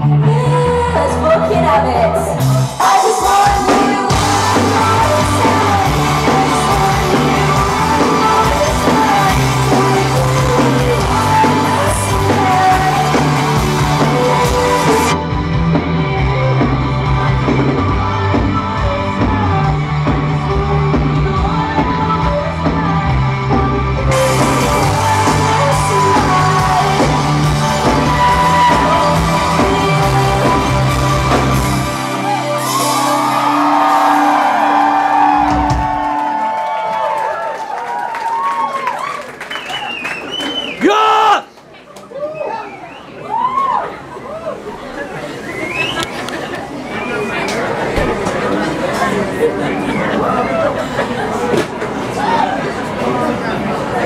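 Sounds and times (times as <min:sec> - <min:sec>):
woman singing: 0:00.0 - 0:15.3, 0:16.0 - 0:31.9
bass guitar: 0:00.0 - 0:36.2
electric guitars: 0:00.0 - 0:37.0
drums: 0:00.0 - 0:41.4, 0:45.3 - 0:49.2.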